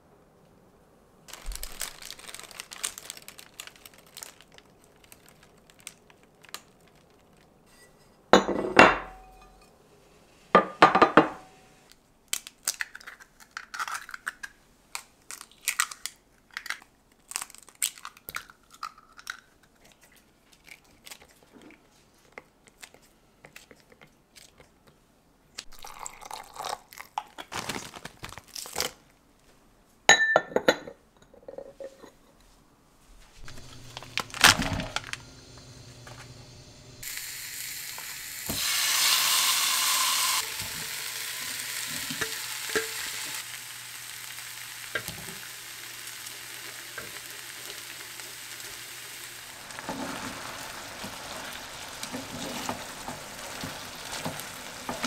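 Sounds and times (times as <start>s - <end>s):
eggs cracking and beaten: 1.3s - 7.6s, 12.3s - 21.8s
plastic bag crinkling: 1.3s - 7.6s, 25.8s - 29.1s, 33.4s - 35.3s.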